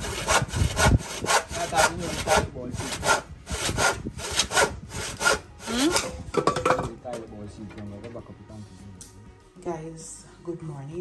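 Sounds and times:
hand saw cutting wood: 0:00.0 - 0:06.2.

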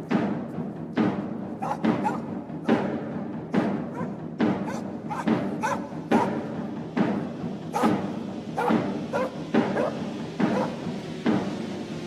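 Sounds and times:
dog barks: 0:01.6 - 0:02.8, 0:03.9 - 0:06.5, 0:07.7 - 0:10.8.

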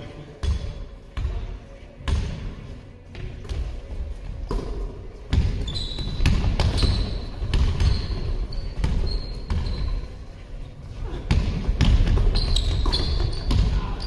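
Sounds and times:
sneaker squeaks: 0:04.5 - 0:10.3, 0:11.3 - 0:14.0
basketball bouncing: 0:05.3 - 0:09.9, 0:11.3 - 0:13.8.

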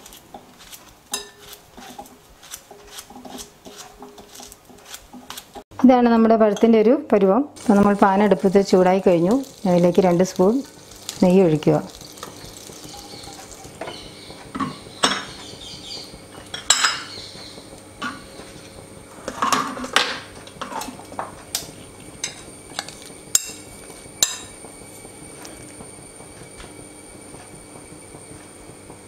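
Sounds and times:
metal spoon clinking on pan: 0:01.1 - 0:01.4
ghee faintly sizzling: 0:07.5 - 0:29.0.

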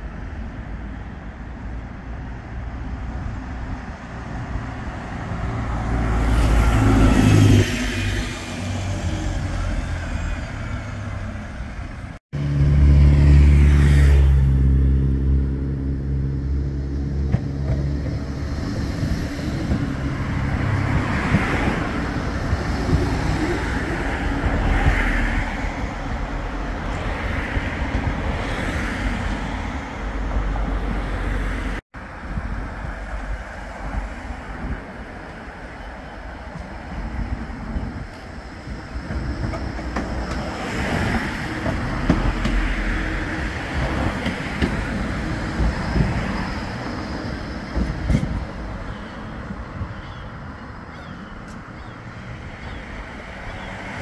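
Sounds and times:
tram rolling past: 0:00.0 - 0:54.0.

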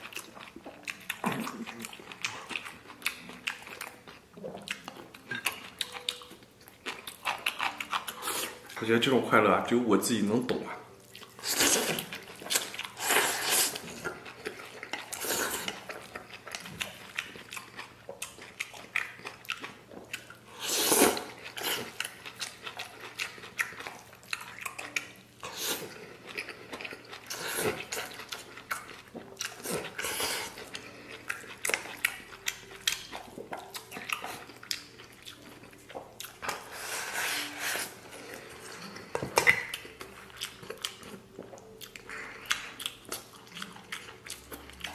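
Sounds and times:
chewing: 0:00.0 - 0:09.2, 0:10.6 - 0:44.9
person slurping noodles: 0:13.0 - 0:13.9, 0:20.6 - 0:21.9.

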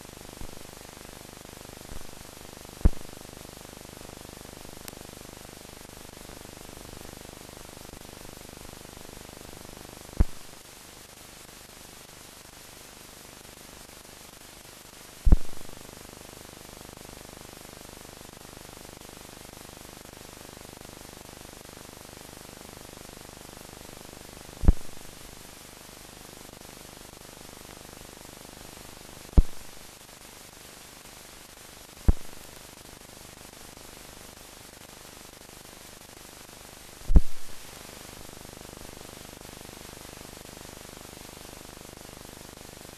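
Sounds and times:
film soundtrack hiss: 0:00.0 - 0:42.9
film splice thump: 0:02.8 - 0:03.1, 0:15.3 - 0:15.7, 0:24.6 - 0:25.0, 0:29.4 - 0:29.7, 0:37.1 - 0:37.6.

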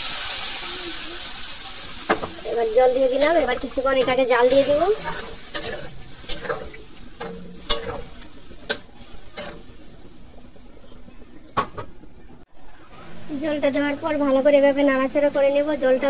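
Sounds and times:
curry sizzling: 0:00.0 - 0:16.0
metal spatula scraping pan: 0:02.1 - 0:09.8.

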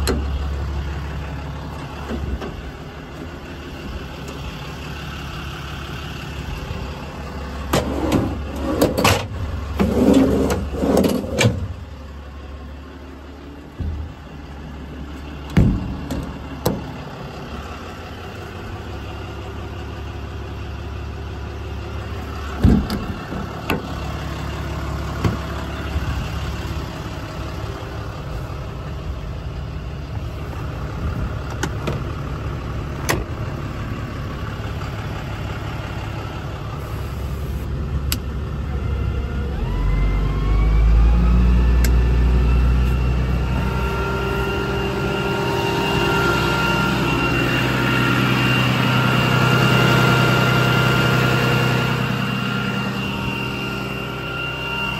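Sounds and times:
diesel engine idling: 0:00.0 - 0:54.9
rising whine: 0:36.7 - 0:54.9.

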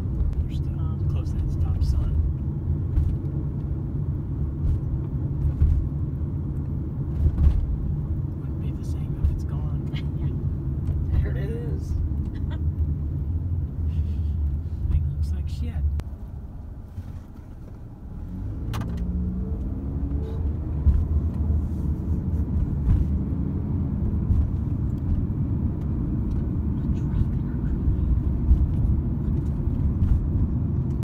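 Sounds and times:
road noise: 0:00.0 - 0:31.0
car engine pulling away: 0:17.0 - 0:31.0.

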